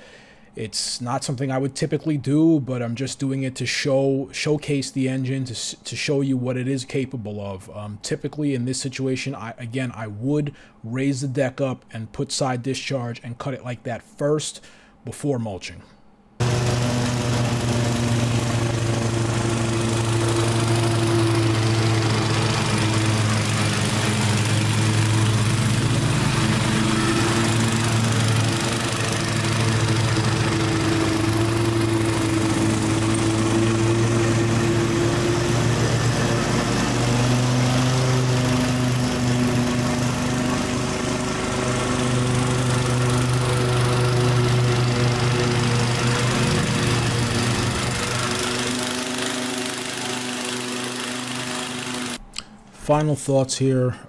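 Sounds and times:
lawn mower engine running: 0:16.4 - 0:52.2.

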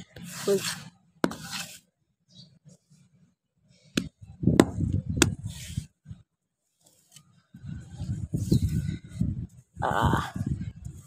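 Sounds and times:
hand rubbing and patting soil: 0:00.0 - 0:01.9, 0:03.9 - 0:07.3
rough scraping: 0:00.0 - 0:01.9.

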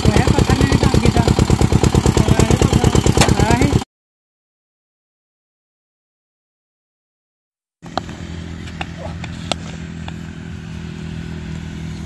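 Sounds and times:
low motor hum: 0:00.0 - 0:03.8, 0:07.8 - 0:12.0.

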